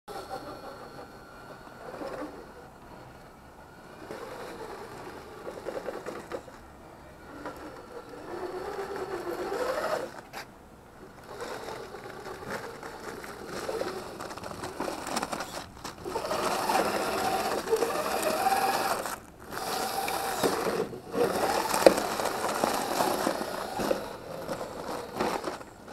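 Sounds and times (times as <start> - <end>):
toy truck electric motor whining: 0.1 - 6.6, 7.2 - 25.9.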